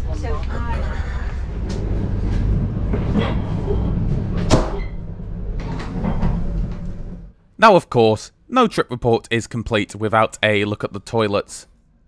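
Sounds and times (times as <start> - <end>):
train carriage rumble: 0.0 - 7.4.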